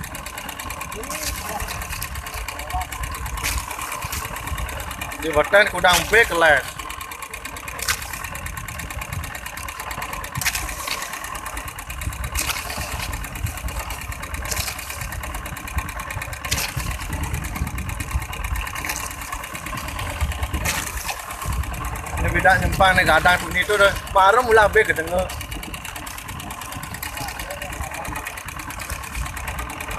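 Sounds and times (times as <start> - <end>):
boat engine idling: 0.0 - 29.9.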